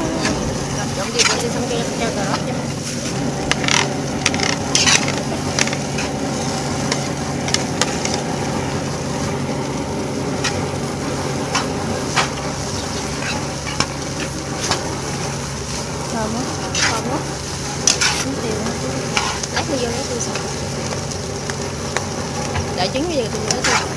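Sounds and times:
fried rice sizzling in a pan: 0.0 - 23.9
spatula scraping a pan: 3.5 - 8.3, 11.4 - 15.8, 16.5 - 19.6, 23.5 - 23.9.

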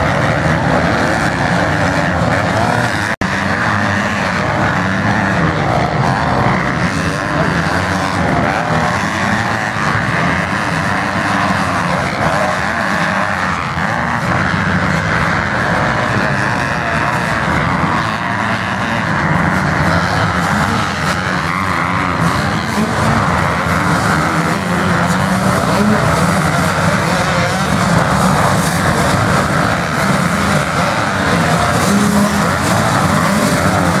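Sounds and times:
dirt bike engines running: 0.0 - 34.0.

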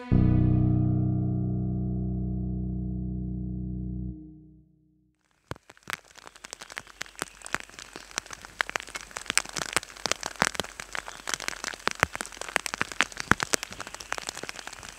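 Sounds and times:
hiss of rainfall: 5.3 - 14.9
raindrops tapping: 5.4 - 14.9.

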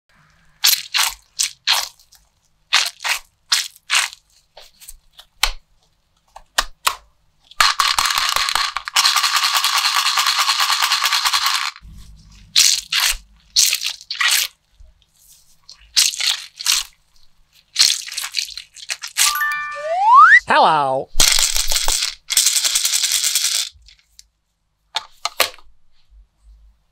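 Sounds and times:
crunchy squishes of squishy toys: 0.6 - 9.0, 11.8 - 19.2.

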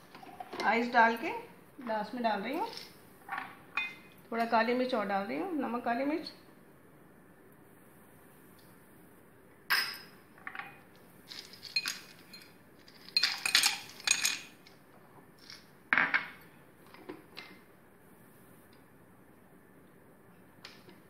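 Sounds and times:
ice cubes clinking in glass: 11.3 - 14.6.

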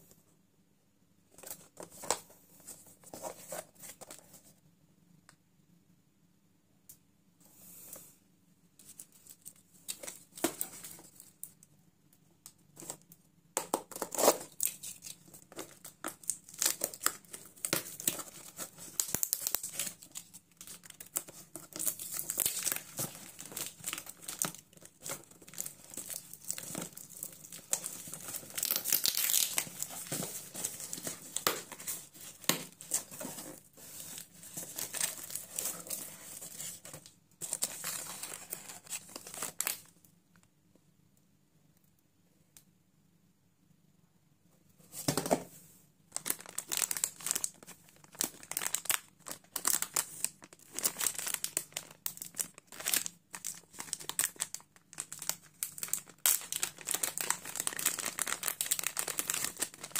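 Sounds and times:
plastic wrap crinkling: 13.8 - 39.9, 46.1 - 59.9.

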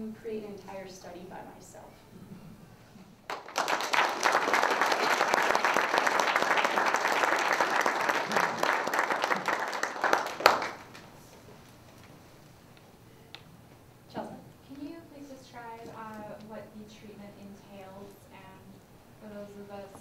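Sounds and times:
crowd applauding: 3.3 - 11.1.

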